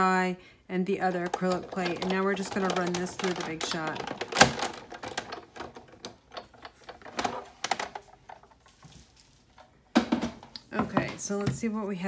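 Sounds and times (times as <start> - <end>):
hand-cranked die-cutting machine clicks: 1.2 - 8.0.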